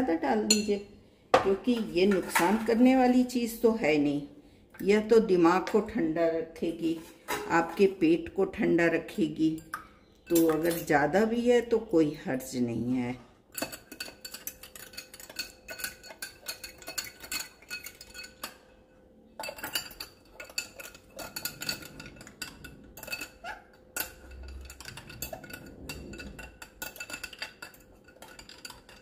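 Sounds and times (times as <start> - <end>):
spoon clinking in a glass: 9.6 - 10.9, 13.5 - 18.8, 19.4 - 29.0.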